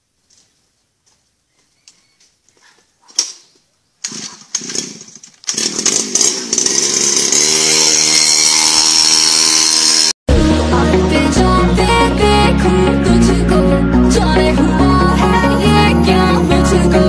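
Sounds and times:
small engine starting clicks: 4.0 - 8.1
two-stroke engine buzzing: 4.6 - 10.2.

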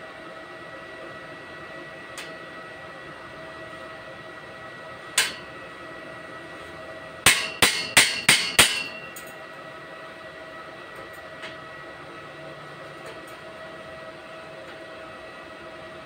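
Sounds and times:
hammer striking steel tube: 7.2 - 9.2.

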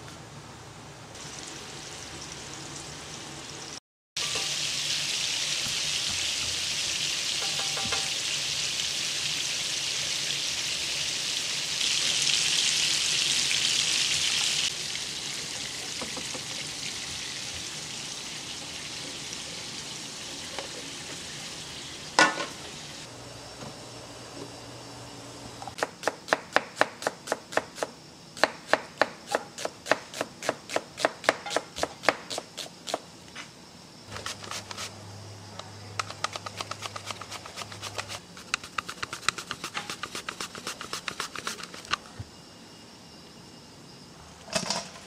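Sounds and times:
patties sizzling in a pan: 1.2 - 23.0.

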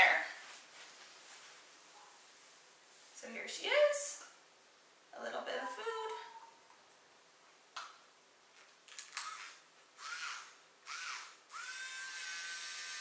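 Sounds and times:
rotary nail grinder spinning: 9.1 - 13.0.

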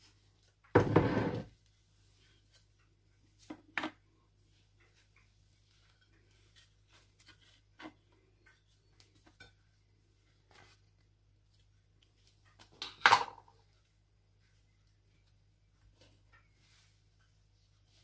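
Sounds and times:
bread rustling: 1.6 - 12.8.

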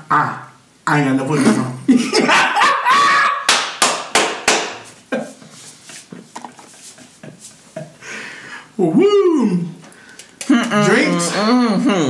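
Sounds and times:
sharp hand smacks: 3.5 - 4.8.

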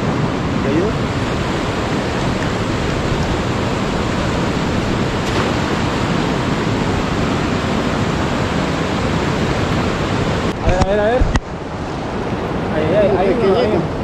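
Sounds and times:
river rushing over rocks: 0.0 - 14.0.

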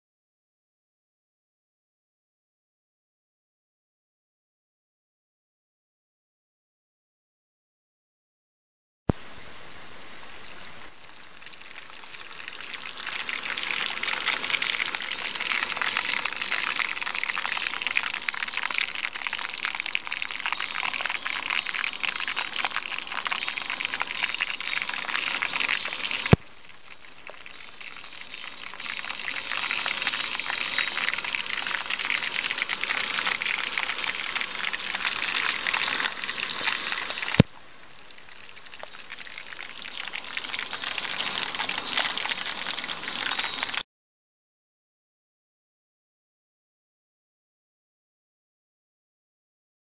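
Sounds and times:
oil boiling with fizzing crackle: 9.1 - 43.8.

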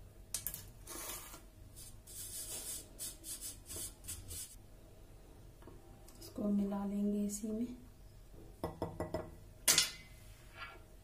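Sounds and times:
flour sifting through metal sieve: 0.8 - 4.6.

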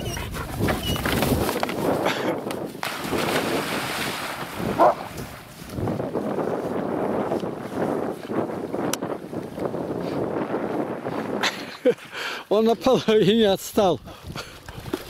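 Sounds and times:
wind noise on microphone: 0.0 - 12.4, 13.4 - 15.0
dogs splashing and swimming: 2.6 - 6.0.

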